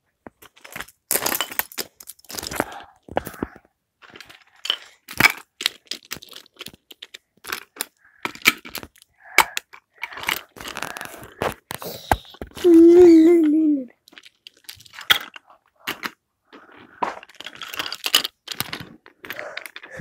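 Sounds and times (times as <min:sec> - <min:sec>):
wooden toy trains clattering: 0:00.3 - 0:20.0.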